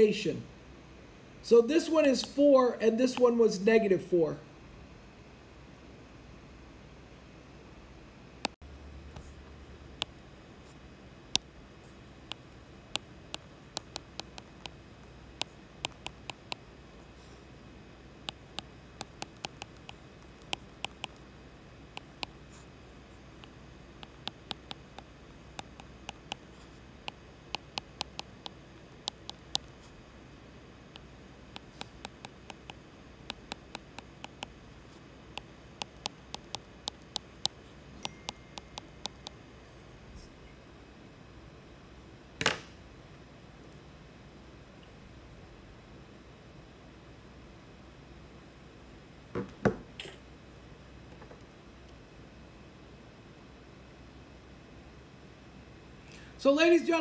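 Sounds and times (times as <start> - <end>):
faint steady hum: 0.0 - 57.0
stylus tapping on glass screen: 13.3 - 14.8, 15.8 - 16.6, 18.3 - 21.2, 23.4 - 26.5, 27.1 - 29.7, 31.6 - 34.5, 35.4 - 39.4.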